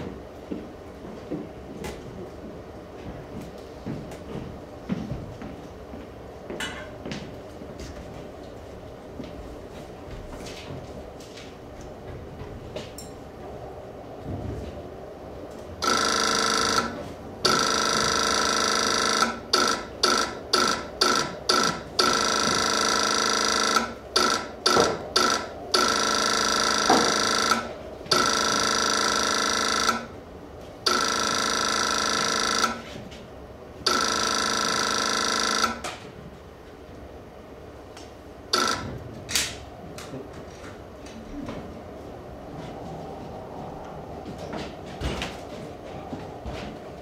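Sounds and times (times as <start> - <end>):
electric buzzer: 15.8 - 30.1, 30.8 - 33.0, 33.8 - 36.0, 38.5 - 39.0.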